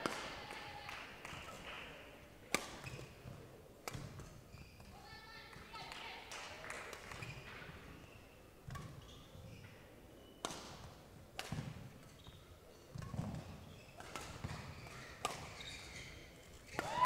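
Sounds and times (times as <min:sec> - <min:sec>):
racket striking shuttlecock: 0:02.5 - 0:02.9, 0:03.8 - 0:04.3, 0:10.4 - 0:11.9, 0:12.9 - 0:15.6
shoes squeaking: 0:02.8 - 0:05.3, 0:07.1 - 0:10.4, 0:12.0 - 0:16.8.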